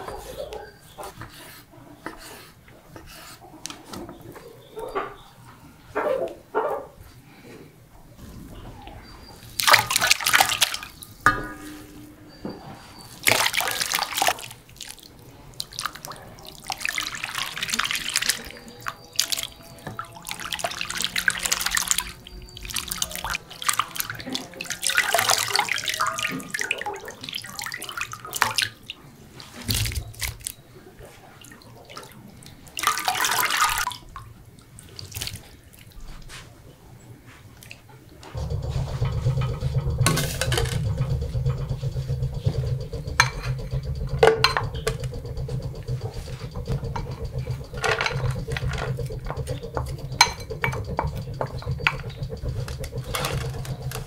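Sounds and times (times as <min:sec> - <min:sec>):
water pouring and splashing: 0:09.4 - 0:12.1, 0:12.7 - 0:36.2, 0:37.6 - 0:54.0.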